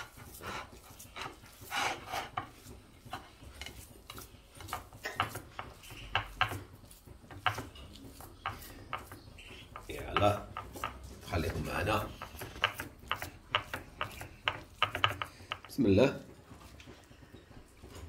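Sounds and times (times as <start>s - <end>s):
hands rubbing crumb coating: 0.0s - 17.8s
fingers tapping on ceramic plate: 2.3s - 15.9s.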